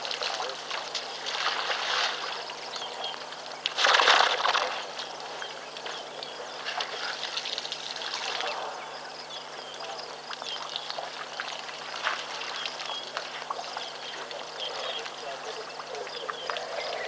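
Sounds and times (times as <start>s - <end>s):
water drips and clicks: 0.0s - 1.6s, 4.5s - 8.5s, 10.2s - 17.0s
elephants drinking water: 0.0s - 17.0s.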